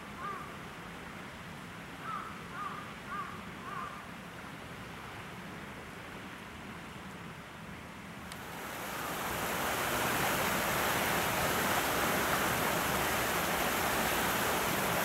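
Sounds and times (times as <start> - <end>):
outdoor background noise: 0.0 - 15.0
crow cawing: 2.0 - 4.0.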